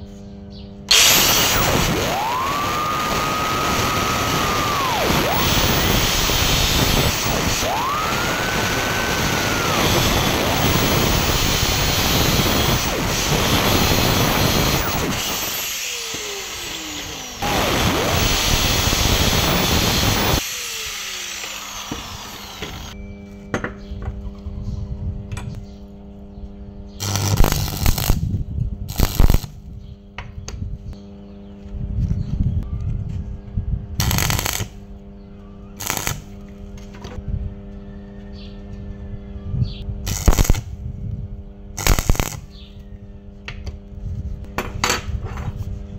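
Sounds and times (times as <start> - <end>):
angle grinder cutting steel: 0.9 - 23.0, 27.0 - 28.2, 28.9 - 29.5, 34.0 - 34.7, 35.8 - 36.2, 40.1 - 40.6, 41.8 - 42.4
arc welder bursts: 0.9 - 23.0, 27.0 - 29.6, 34.0 - 34.8, 35.8 - 36.4, 40.0 - 40.8, 41.8 - 42.6
steady hum: 0.9 - 23.2, 25.0 - 29.7.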